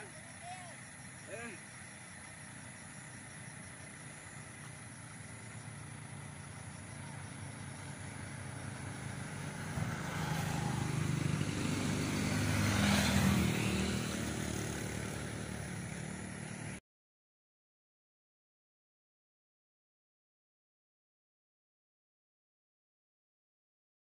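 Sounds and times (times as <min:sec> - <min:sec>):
vehicle engine passing: 0:00.0 - 0:16.8.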